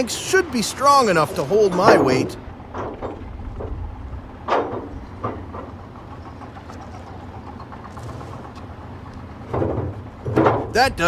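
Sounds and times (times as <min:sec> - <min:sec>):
diesel engine idling: 0:00.0 - 0:11.0
short knocks: 0:01.8 - 0:06.9, 0:09.4 - 0:10.9.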